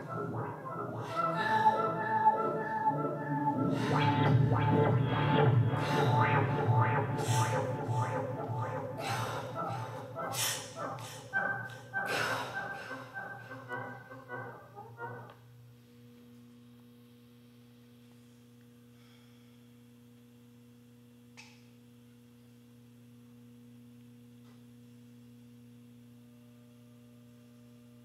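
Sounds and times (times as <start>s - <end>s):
rhythmic electronic music: 0.0s - 15.4s
low electronic hum: 0.0s - 28.0s.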